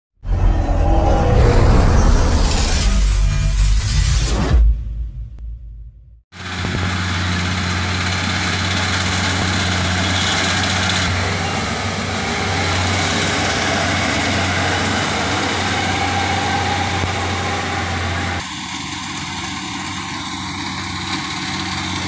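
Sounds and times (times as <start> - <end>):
combine harvester diesel engine: 6.3 - 22.0.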